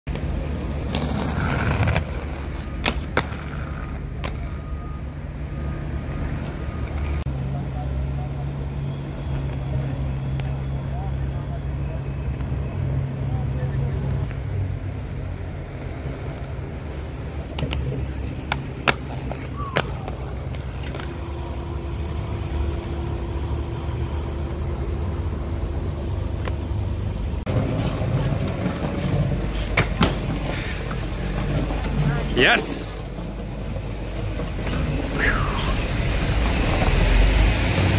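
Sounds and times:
skateboard clacking on ground: 0.1 - 4.6, 17.5 - 21.1
skateboard wheels rolling on concrete: 0.1 - 7.3, 11.6 - 37.9.

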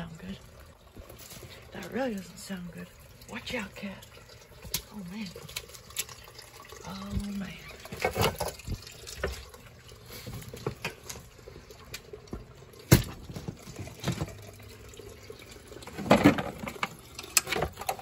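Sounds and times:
water pouring: 0.0 - 18.0
knocks of objects being moved: 10.2 - 11.3, 12.3 - 14.5, 15.9 - 17.9.

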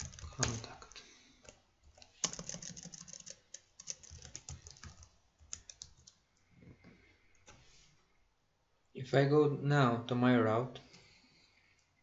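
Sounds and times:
computer keyboard typing: 0.0 - 0.8, 1.4 - 6.2.

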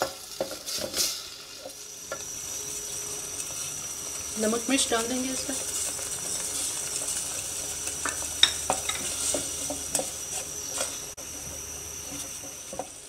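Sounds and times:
sauce sizzling in hot oil: 0.0 - 13.0.

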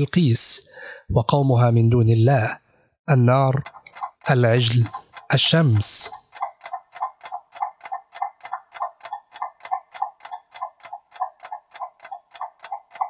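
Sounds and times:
clock ticking: 3.1 - 13.0.

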